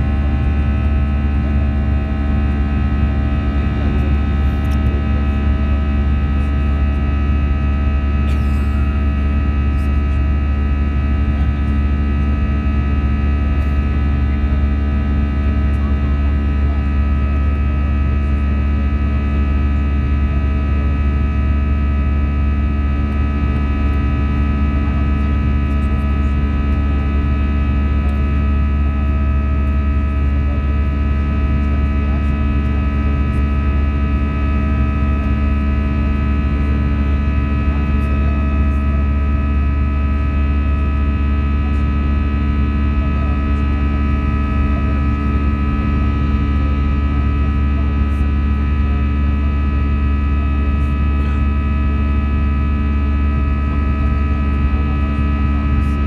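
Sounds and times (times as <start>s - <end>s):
jet engine drone in cabin: 0.0s - 56.0s.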